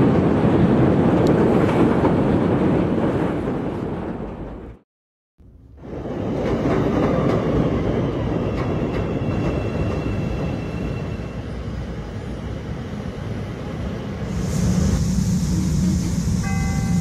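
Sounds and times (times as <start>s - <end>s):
train rumbling: 0.0s - 4.8s, 5.4s - 17.0s
steady hiss: 14.3s - 17.0s
chime tone: 16.4s - 17.0s.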